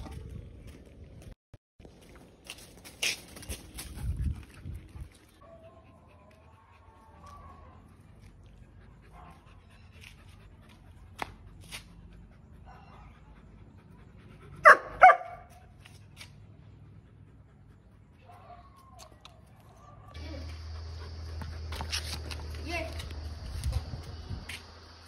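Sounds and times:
puppy barking: 0:12.6 - 0:13.2, 0:14.6 - 0:15.6.

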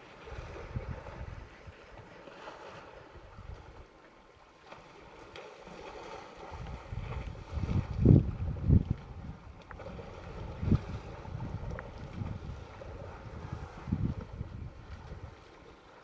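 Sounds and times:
wind buffeting microphone: 0:00.0 - 0:02.0, 0:03.0 - 0:03.8, 0:06.4 - 0:15.6
elephants splashing in water: 0:00.0 - 0:16.0.

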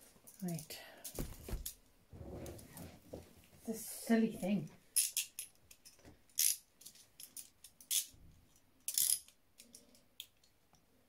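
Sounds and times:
handcuffs clinking and rattling: 0:04.9 - 0:10.6.

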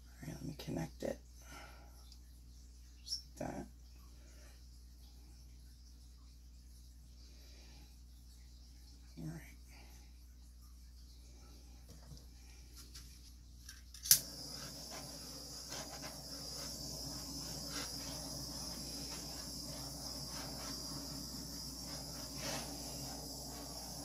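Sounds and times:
butane torch clicking alight: 0:13.7 - 0:24.0
torch flame hissing: 0:14.0 - 0:24.0.

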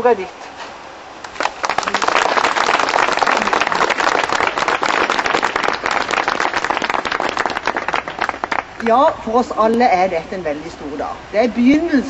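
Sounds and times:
people applauding: 0:01.2 - 0:08.9.

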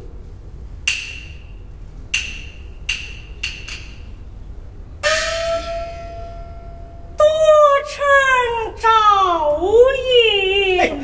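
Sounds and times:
sustained pitched band note: 0:05.0 - 0:07.2.

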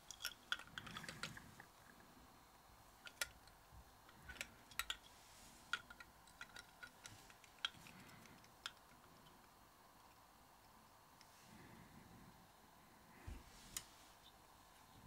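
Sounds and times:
small clicks and light taps: 0:05.7 - 0:11.3.

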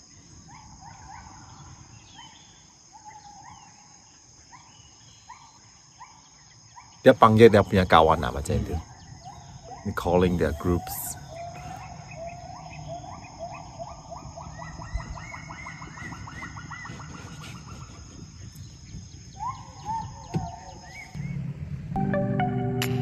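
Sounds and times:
gibbons whooping: 0:09.3 - 0:21.2.

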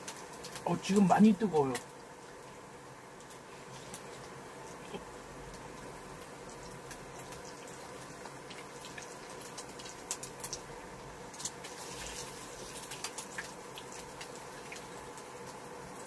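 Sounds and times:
eggs sizzling in oil: 0:00.0 - 0:16.0
sharp pops of frying oil: 0:05.5 - 0:10.7, 0:11.3 - 0:15.6.

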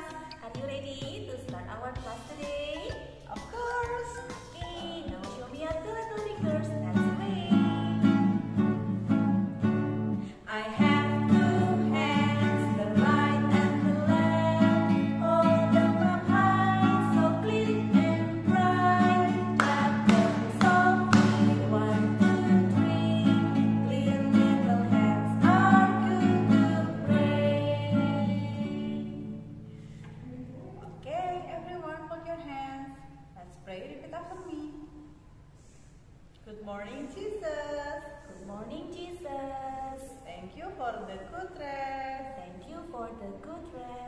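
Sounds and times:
women singing children's song: 0:00.0 - 0:08.6, 0:10.3 - 0:29.6, 0:36.8 - 0:44.0
acoustic guitar strumming: 0:01.4 - 0:30.0.

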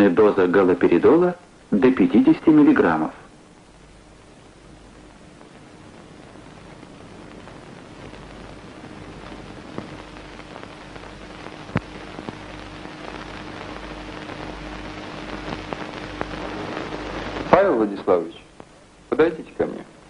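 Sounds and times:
dense crackling hiss: 0:00.0 - 0:20.0
faint steady hum: 0:00.0 - 0:20.0
sharp clicks and pops: 0:06.8 - 0:17.6.

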